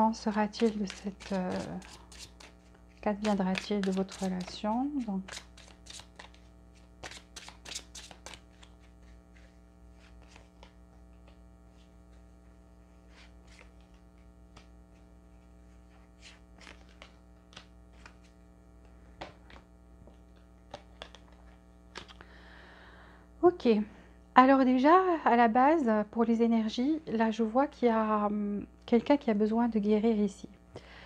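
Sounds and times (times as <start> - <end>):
electrical hum: 0.0 - 31.0
cards clicking and flicking: 0.5 - 11.4, 16.2 - 18.4, 19.2 - 22.3.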